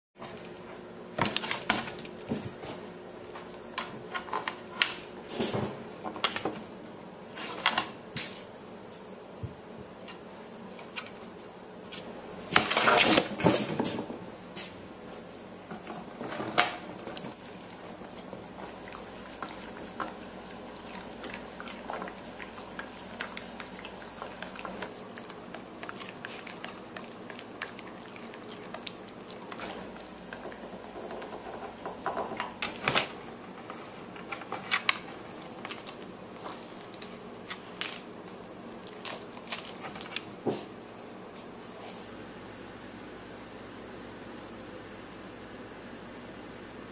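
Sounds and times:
dog chewing cabbage crunches: 17.3 - 32.6.

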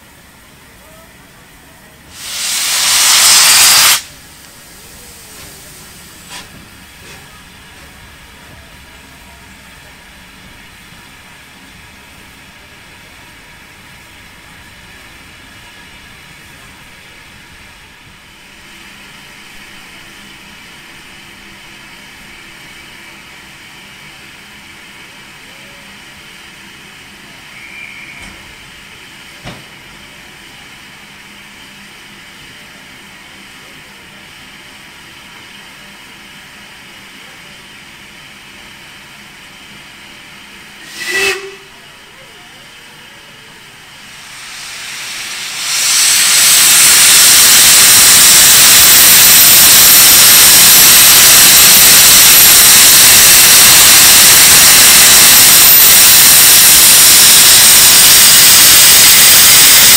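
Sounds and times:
steady steam hiss: 1.6 - 25.5, 26.3 - 59.9
loud hissing steam blast: 2.1 - 7.6, 40.8 - 41.7, 43.9 - 59.9.

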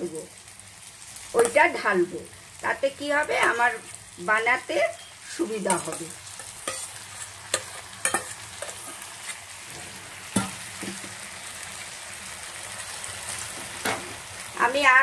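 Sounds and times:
vegetables sizzling in a pan: 0.0 - 15.0
steel spoon clinking on bowl: 6.6 - 6.9, 7.5 - 8.8.

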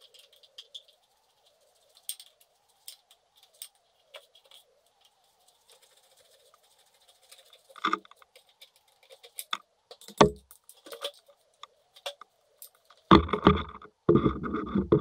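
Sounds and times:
rough scraping noise: 13.0 - 15.0.

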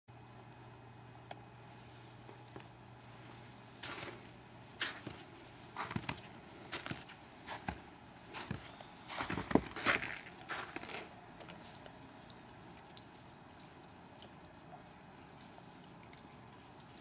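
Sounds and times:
footsteps crunching in snow: 3.8 - 11.1.

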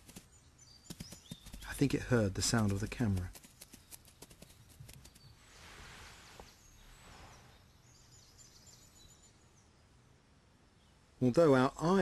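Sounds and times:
soft rustling hiss: 0.0 - 9.2.

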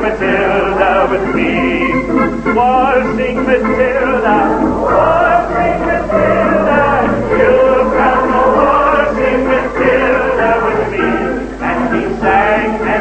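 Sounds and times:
man singing into a microphone: 0.0 - 4.6
audience singing along: 0.0 - 13.0
band playing: 0.0 - 13.0.

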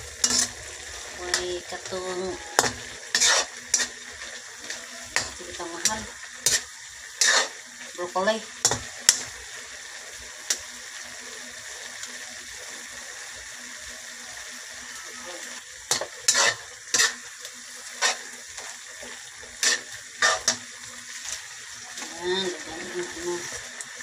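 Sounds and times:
spatula scraping a wok: 0.0 - 9.4, 15.8 - 22.0
noodles sizzling in a wok: 0.0 - 24.0.

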